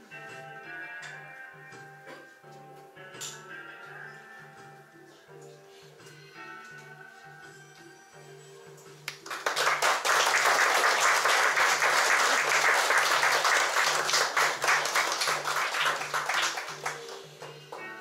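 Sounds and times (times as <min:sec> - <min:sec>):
faint instrumental music: 0:00.0 - 0:18.0
audience applauding: 0:09.1 - 0:17.6.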